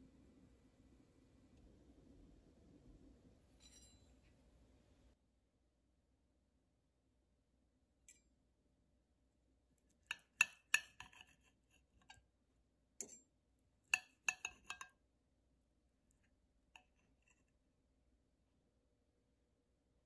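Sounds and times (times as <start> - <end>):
cutlery clinking on ceramic plate: 3.6 - 4.3, 10.0 - 12.2, 13.0 - 13.2, 13.9 - 14.9.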